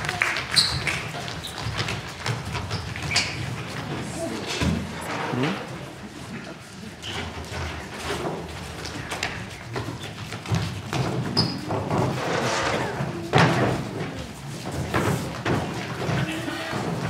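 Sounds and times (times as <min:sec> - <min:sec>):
faint voices: 0:03.6 - 0:07.6, 0:11.5 - 0:17.0.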